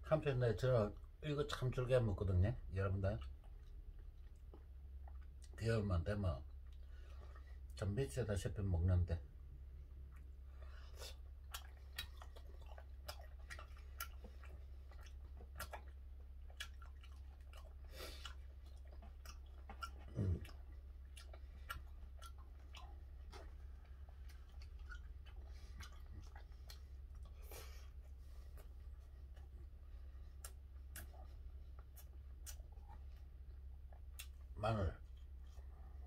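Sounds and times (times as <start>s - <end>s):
man chewing food: 2.8s - 7.8s, 9.2s - 36.0s
wet mouth clicks and smacks: 11.1s - 27.4s, 30.4s - 33.3s, 33.9s - 34.5s.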